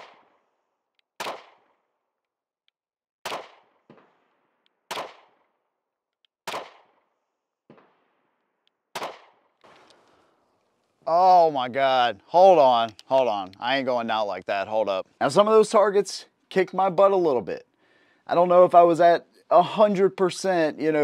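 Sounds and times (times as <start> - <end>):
pistol shots: 0.0 - 0.6, 1.2 - 1.9, 3.2 - 5.6, 6.4 - 10.0.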